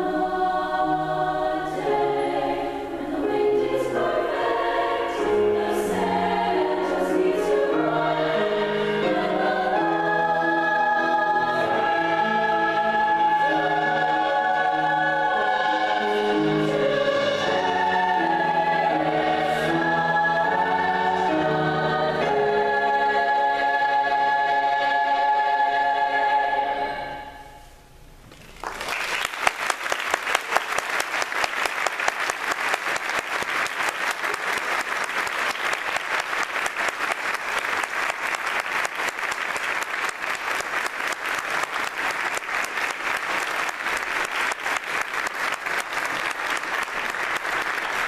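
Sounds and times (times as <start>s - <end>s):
choir singing chord: 0.0s - 27.6s
audience applauding: 28.4s - 48.0s.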